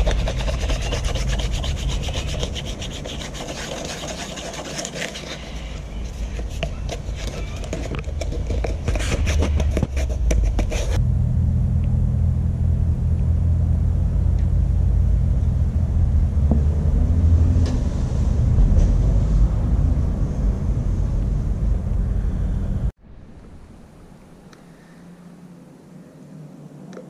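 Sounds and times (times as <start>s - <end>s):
sandpaper scraping rubber: 0.0s - 11.0s
loud low machine drone: 11.0s - 23.2s.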